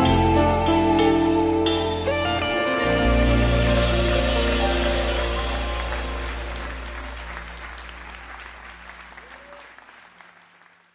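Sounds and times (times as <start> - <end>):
final music chord ringing: 0.0 - 8.5
applause: 5.2 - 10.9.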